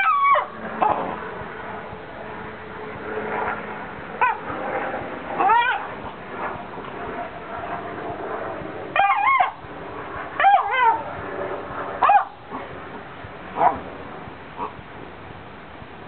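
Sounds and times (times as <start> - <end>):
dog whining: 0.0 - 1.0, 5.4 - 5.9, 9.0 - 9.6, 10.4 - 11.0.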